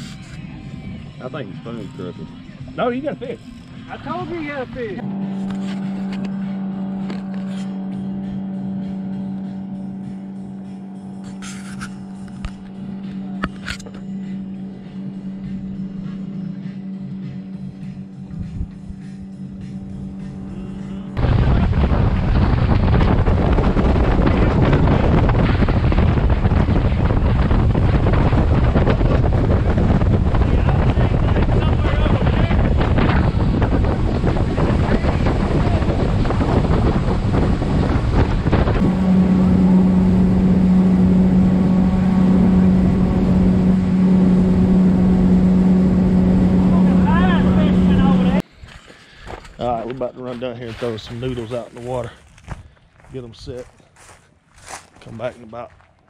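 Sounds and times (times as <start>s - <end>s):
boat motor running: 0.0s - 48.6s
steady hum: 8.0s - 48.4s
water rushing past hull: 21.2s - 48.4s
wind buffeting microphone: 21.2s - 48.5s.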